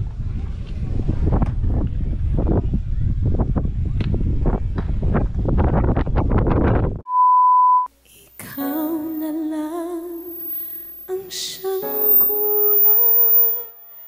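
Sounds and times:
wind buffeting microphone: 0.0s - 7.0s
high beep: 7.1s - 7.9s, 10.2s - 14.0s
song with singing voice: 8.1s - 14.0s.

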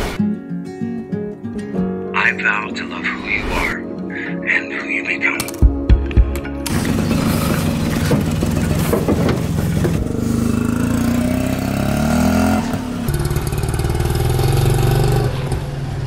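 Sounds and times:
auto-rickshaw engine clattering: 6.6s - 16.0s.

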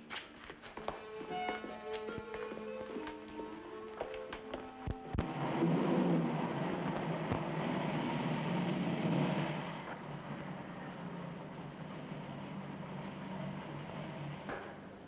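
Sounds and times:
car engine humming: 1.2s - 15.0s.

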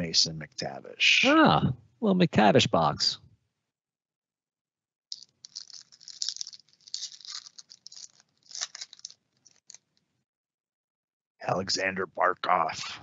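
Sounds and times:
foil wrapper crinkling and tearing: 5.1s - 9.8s.

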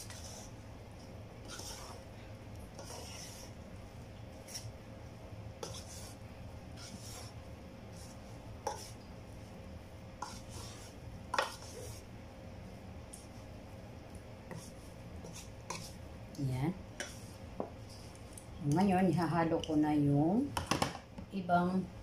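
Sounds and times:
spatula scraping in metal pot: 0.0s - 0.6s, 1.4s - 2.1s, 2.8s - 3.6s.

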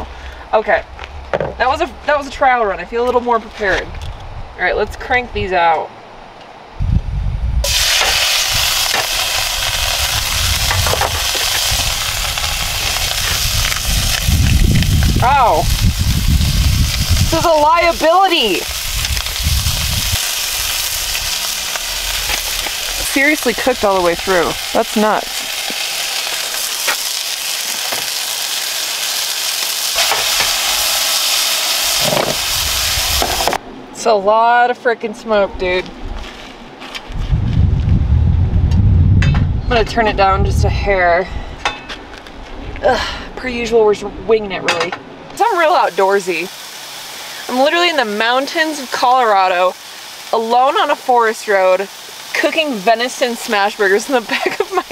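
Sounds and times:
low rumble: 6.7s - 17.8s, 18.5s - 26.8s, 30.2s - 34.0s, 35.4s - 45.4s
burger patties sizzling in a pan: 7.7s - 33.6s, 45.4s - 54.9s.

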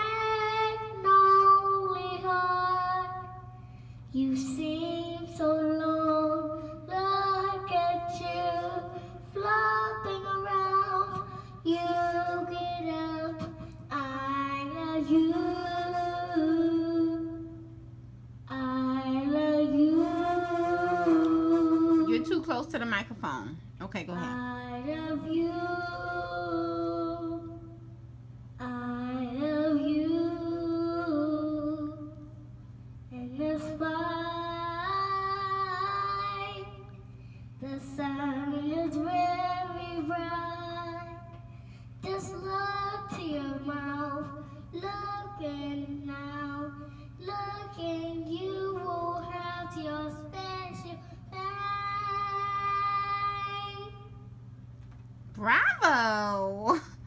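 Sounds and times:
child singing into microphone: 0.0s - 17.6s, 18.5s - 22.3s, 28.6s - 32.3s, 33.1s - 37.0s, 37.6s - 54.1s
low steady hum: 0.0s - 57.0s.

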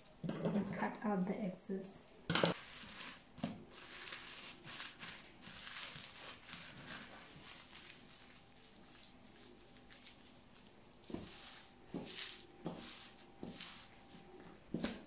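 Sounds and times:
cling film crinkling: 2.5s - 14.0s.

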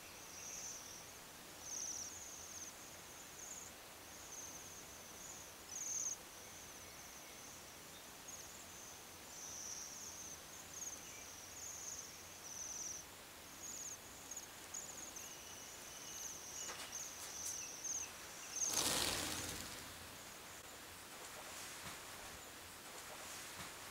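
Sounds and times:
birds giving high trilled calls: 14.8s - 20.0s
rush of bird wings: 16.6s - 23.9s.

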